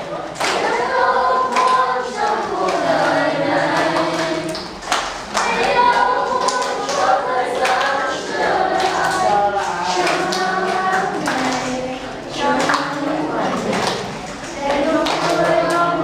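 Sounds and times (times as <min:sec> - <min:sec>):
students singing together: 0:00.0 - 0:16.0
hand claps: 0:00.4 - 0:00.8, 0:01.4 - 0:01.9, 0:03.7 - 0:08.1, 0:08.7 - 0:16.0.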